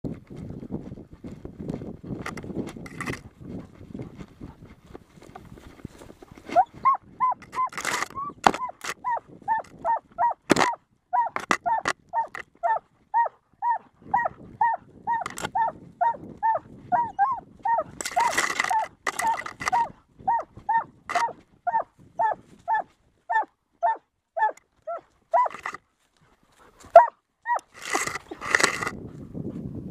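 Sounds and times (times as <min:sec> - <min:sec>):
hound yelping: 0:06.4 - 0:25.8, 0:26.9 - 0:28.8.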